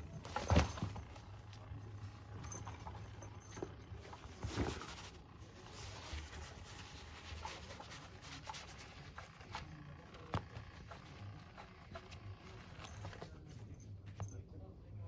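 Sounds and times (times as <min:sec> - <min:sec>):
kitten scratching and rustling: 0:00.0 - 0:14.2.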